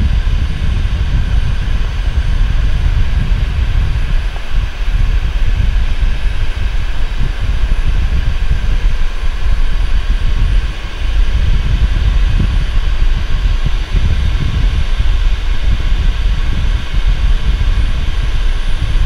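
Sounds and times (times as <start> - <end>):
jet engine high whine: 0.0 - 19.0
wind buffeting microphone: 0.0 - 19.0.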